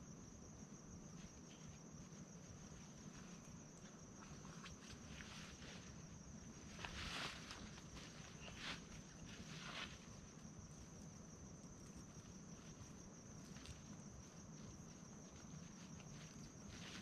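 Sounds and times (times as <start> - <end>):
high-pitched insect chorus: 0.0 - 17.0
soft scuff on ground: 6.7 - 10.2, 12.4 - 17.0.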